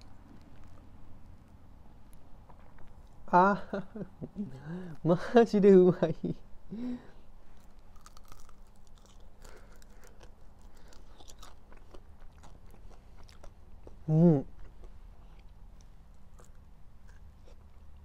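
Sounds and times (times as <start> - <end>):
person chewing crunchy food: 0.0 - 3.2, 7.6 - 18.0
person humming mm: 14.0 - 14.5.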